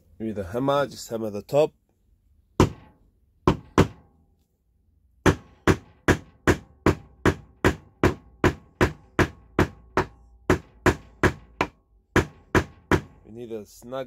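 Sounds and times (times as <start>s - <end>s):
hammer tapping wooden dowel: 2.6s - 4.0s, 5.2s - 13.2s.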